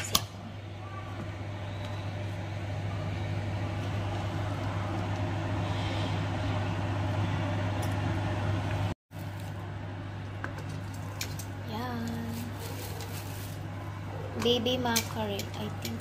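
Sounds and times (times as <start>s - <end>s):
low hum: 0.0s - 12.2s.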